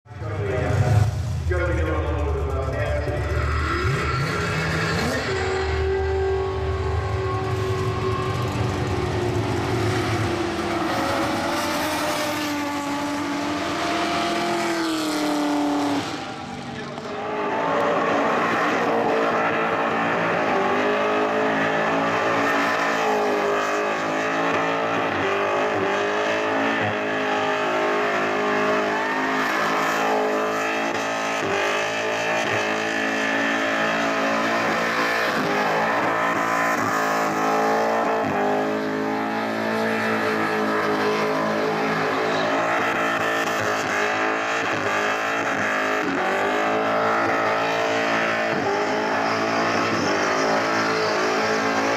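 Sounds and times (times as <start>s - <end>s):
car engine revving: 0.1s - 51.9s
tyres squealing: 28.6s - 30.4s.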